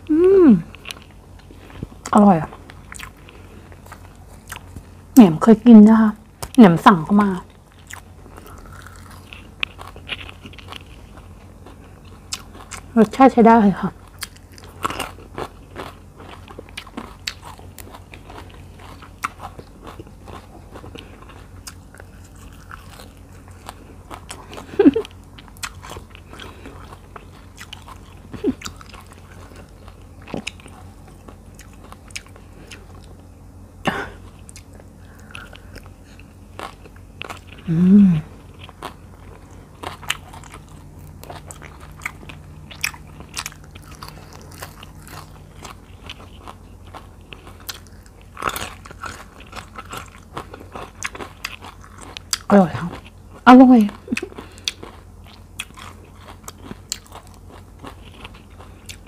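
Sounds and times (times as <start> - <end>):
person humming briefly: 0.0 - 0.7, 37.6 - 38.4
chewing with wet clicks: 0.7 - 4.9, 6.4 - 13.2, 14.0 - 33.2, 34.4 - 37.6, 38.6 - 59.0.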